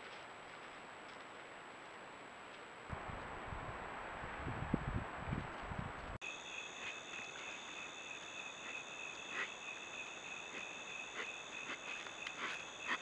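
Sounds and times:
insects trilling: 6.2s - 13.0s.

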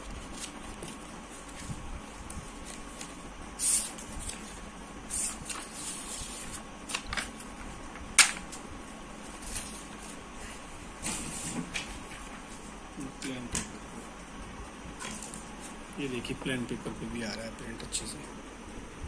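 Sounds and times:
paper rustling: 0.0s - 7.5s, 9.2s - 10.2s.

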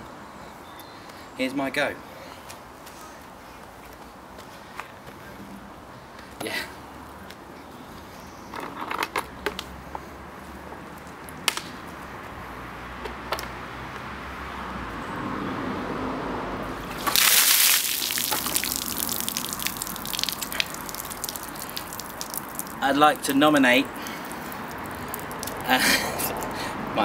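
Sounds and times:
gush of water: 16.8s - 23.4s, 24.0s - 26.4s
water dripping onto ground: 16.9s - 26.6s.

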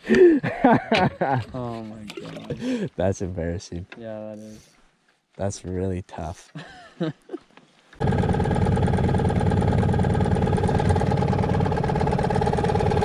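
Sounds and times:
outboard motor running: 8.0s - 13.0s.

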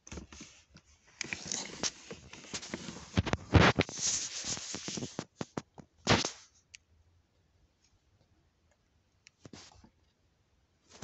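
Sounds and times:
fabric rubbing on microphone: 1.4s - 6.5s.

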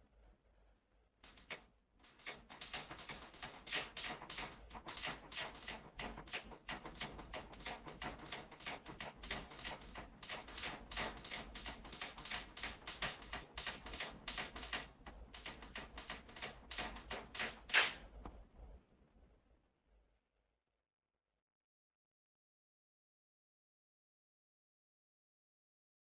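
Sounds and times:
rapid light tapping: 1.2s - 18.4s.

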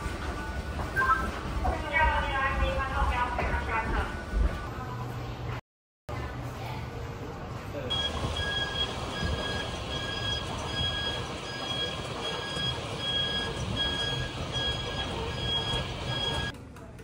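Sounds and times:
alternating high and low beeps: 7.9s - 16.5s
electric cart humming: 7.9s - 16.5s.

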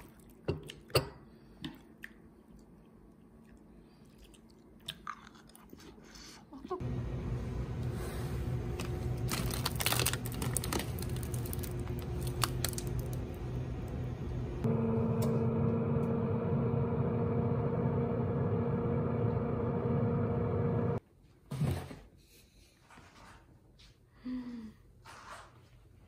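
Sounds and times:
low background hum: 0.0s - 21.4s
oven fan whirring: 6.8s - 21.0s
plastic packaging crinkling: 8.8s - 13.3s.

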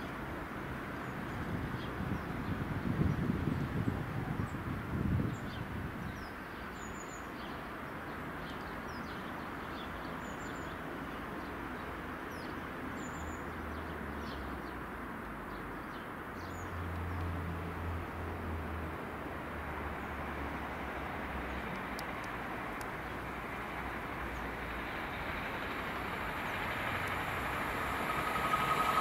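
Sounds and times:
background noise: 0.0s - 29.0s
small birds chirping: 1.0s - 17.3s.

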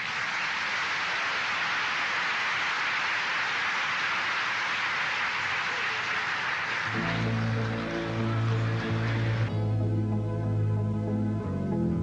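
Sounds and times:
large audience applauding: 0.0s - 9.6s.

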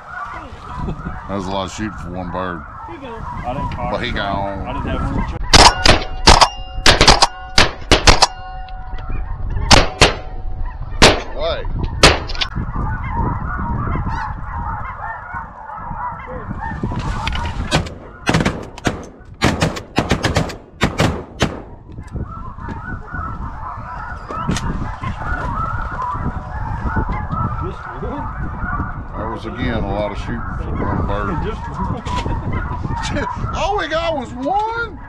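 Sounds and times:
geese yelping: 0.0s - 5.6s, 8.3s - 18.3s, 21.8s - 35.0s
shotgun shots: 5.5s - 8.5s, 9.7s - 10.4s, 11.0s - 11.4s, 12.0s - 12.5s, 17.7s - 21.8s.

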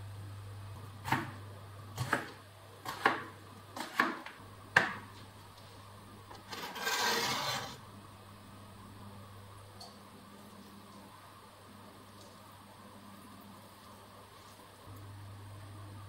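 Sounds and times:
knife chopping on cutting board: 1.0s - 1.4s, 2.0s - 5.1s
knife scraping board: 6.3s - 7.8s.

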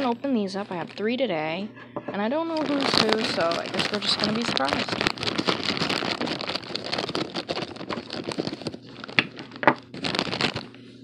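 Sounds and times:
plastic pouch crinkling: 2.4s - 10.8s.

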